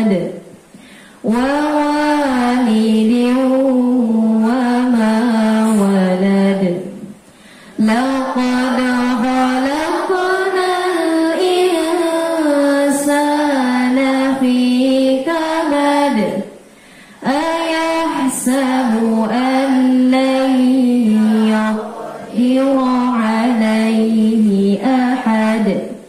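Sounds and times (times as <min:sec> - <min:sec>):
young voices chanting: 0:07.8 - 0:13.5, 0:17.2 - 0:24.2.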